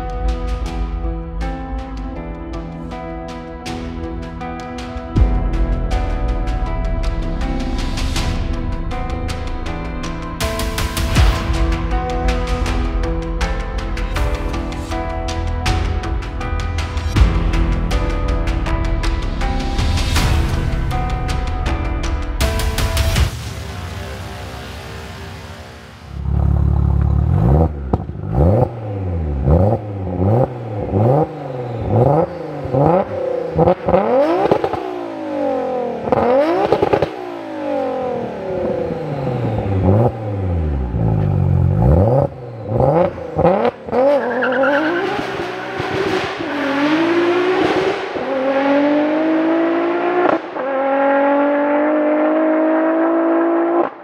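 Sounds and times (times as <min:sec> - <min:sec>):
car accelerating through upshifts: 0:26.2 - 0:54.0
car engine revving hard: 0:26.2 - 0:54.0.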